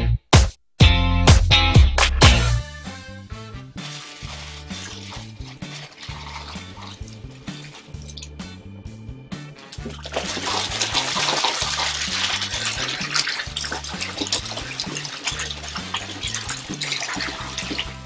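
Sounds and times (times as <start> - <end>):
background music with bass line: 0.0 - 18.0
running water rushing: 3.8 - 8.4, 9.5 - 18.0.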